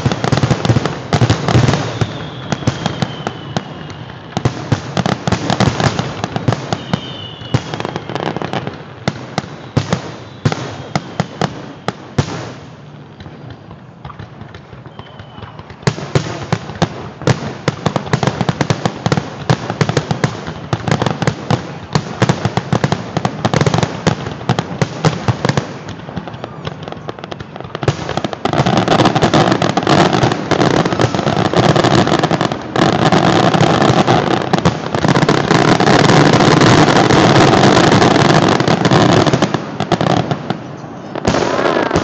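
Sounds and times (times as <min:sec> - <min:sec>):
fireworks bursting: 0:00.0 - 0:42.0.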